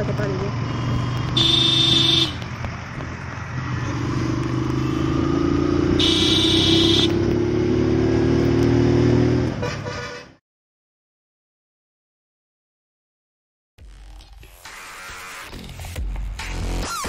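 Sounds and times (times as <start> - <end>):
motorcycle engine hum: 0.0 - 9.7
road noise: 0.0 - 10.4
high horn honk: 1.3 - 2.4, 5.9 - 7.2, 9.5 - 10.4.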